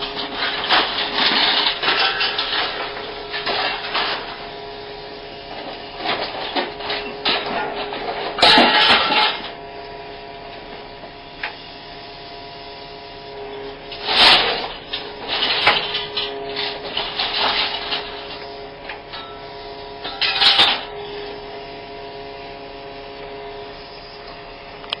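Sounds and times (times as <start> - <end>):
scrap metal scraping and clattering: 0.0 - 4.4, 5.5 - 9.6, 13.9 - 21.0
machine humming: 0.0 - 25.0.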